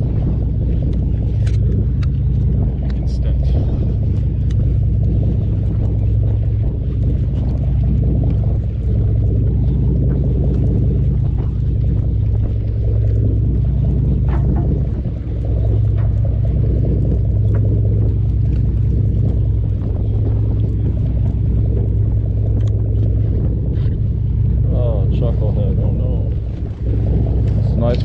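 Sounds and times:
boat engine humming: 0.0s - 28.0s
faint clicks: 0.8s - 3.0s, 4.0s - 4.7s, 16.9s - 23.2s.

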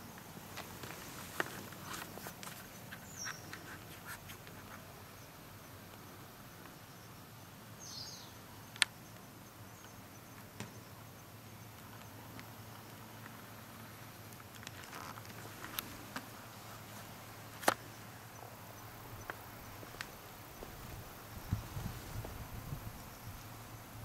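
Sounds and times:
high bird chirps: 3.0s - 3.8s.

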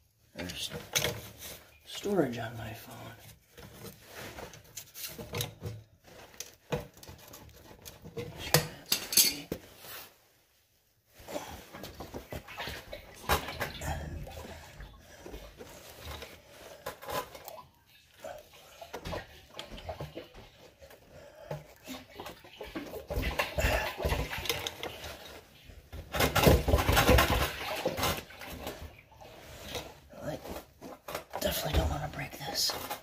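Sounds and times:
metal fittings clinking and scraping: 4.5s - 9.6s.

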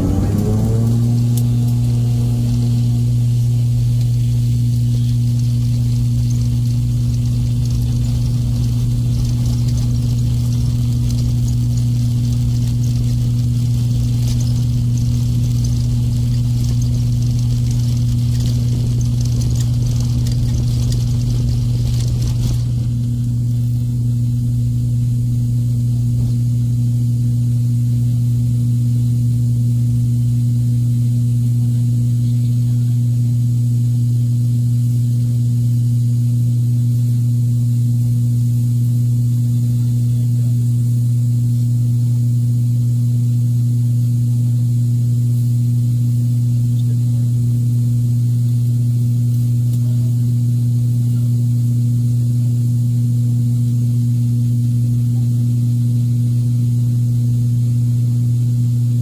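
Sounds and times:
rumbling hiss of wheels on runway: 0.0s - 24.0s
turboprop engine and propeller drone: 0.0s - 59.0s.

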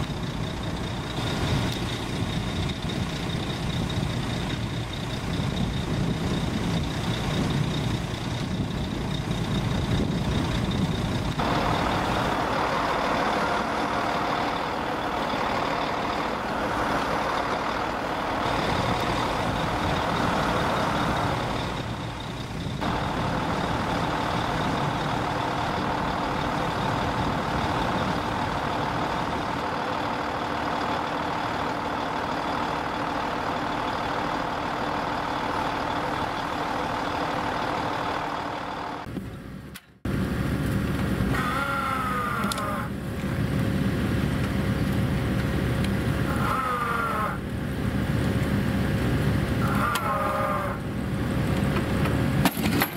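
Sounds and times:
heavy diesel machinery running: 0.0s - 52.9s
short wavering squeals: 41.3s - 42.9s, 49.6s - 50.8s.

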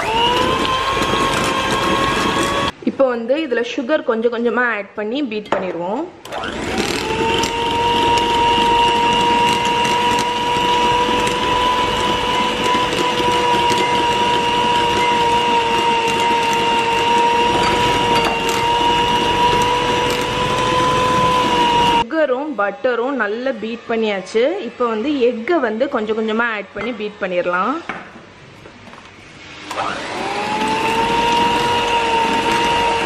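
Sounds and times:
electric hand mixer whine: 0.0s - 2.8s, 6.3s - 22.0s, 29.6s - 33.0s.

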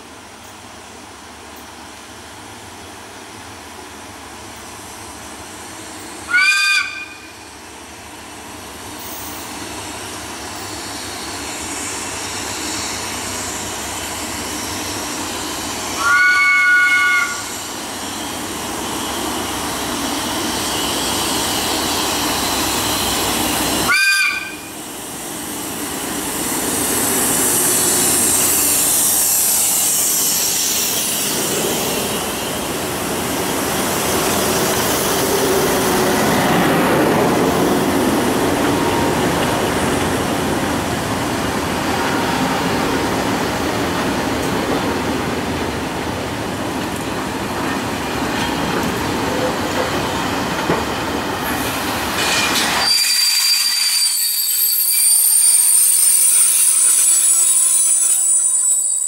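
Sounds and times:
locomotive engine and wheels: 0.0s - 59.0s
rising hiss: 24.7s - 44.4s.

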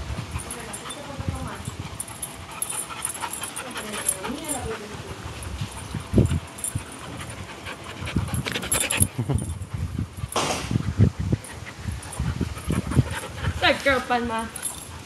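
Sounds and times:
dogs panting: 0.0s - 15.0s
low puffs and thuds: 9.7s - 13.1s.

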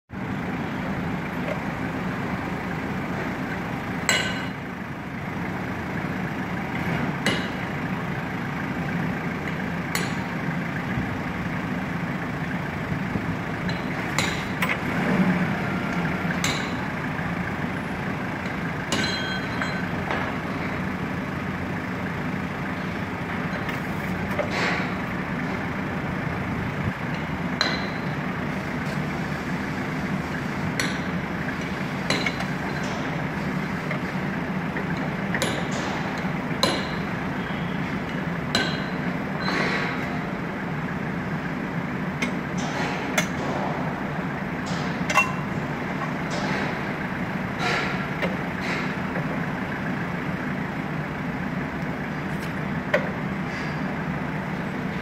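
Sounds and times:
forklift engine running: 0.1s - 55.0s
sharp metallic clinks: 18.9s - 20.0s.

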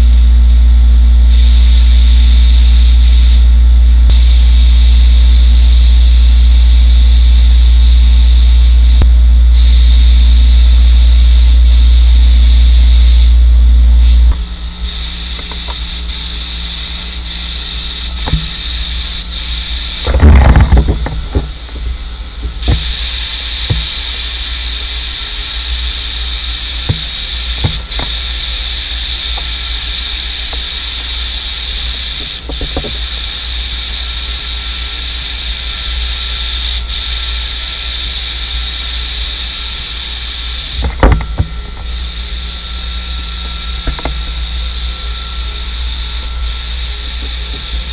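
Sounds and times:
heavy low hum: 0.0s - 47.9s
spray gun hissing: 1.3s - 3.5s, 4.1s - 9.0s, 9.6s - 13.4s, 14.0s - 20.4s, 22.5s - 47.9s
jumble of knocks: 20.1s - 22.8s, 40.8s - 41.8s.

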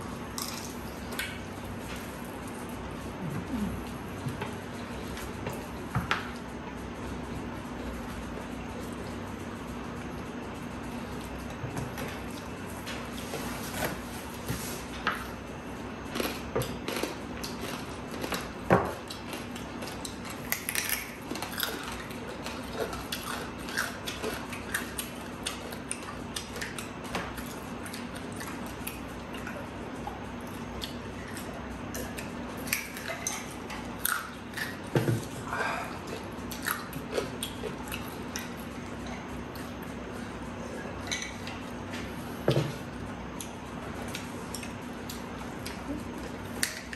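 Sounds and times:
steady low hum: 0.0s - 46.9s
crispy food chewing: 16.0s - 40.3s.

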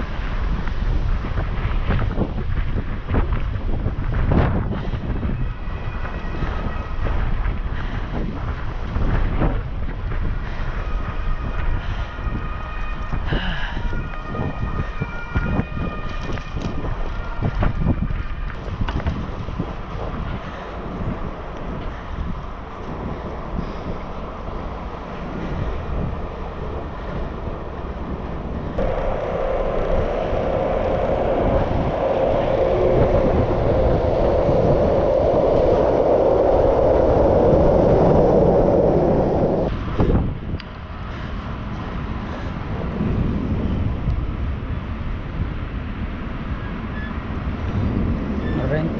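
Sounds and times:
bike tyre noise on pavement: 0.0s - 48.8s
wind buffeting microphone: 0.0s - 48.9s
steady rumble: 16.4s - 48.9s.

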